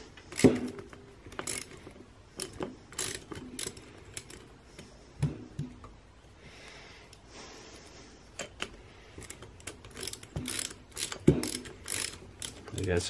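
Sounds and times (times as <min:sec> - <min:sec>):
ratchet clicking: 0:00.3 - 0:04.9, 0:08.4 - 0:13.0.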